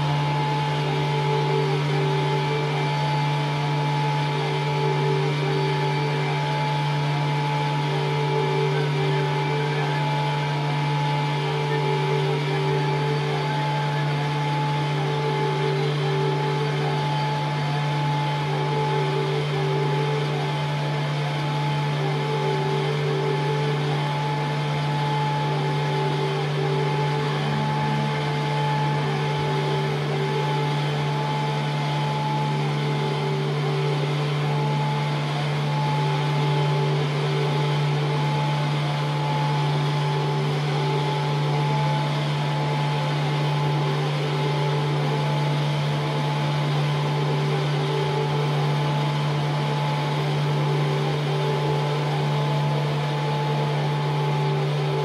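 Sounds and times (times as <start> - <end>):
higher wavering sustained tones: 0.0 - 55.0
hissing engine-like noise: 0.0 - 55.0
low droning tone: 0.0 - 55.0.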